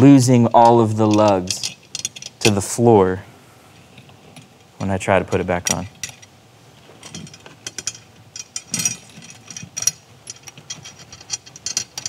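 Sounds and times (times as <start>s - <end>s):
metal rods clicking and rattling: 0.6s - 2.6s, 5.6s - 6.3s, 7.0s - 12.0s.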